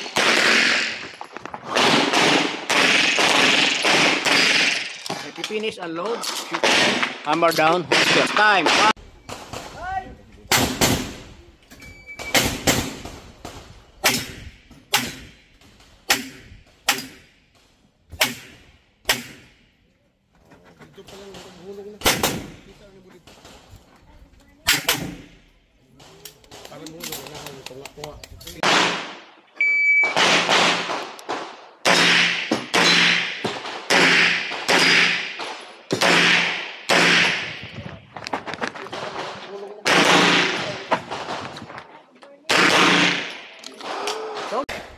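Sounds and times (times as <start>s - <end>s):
pistol shots with echo: 0.0s - 5.0s, 22.0s - 22.6s, 28.6s - 29.3s, 30.1s - 37.7s, 39.0s - 41.5s, 42.5s - 44.0s.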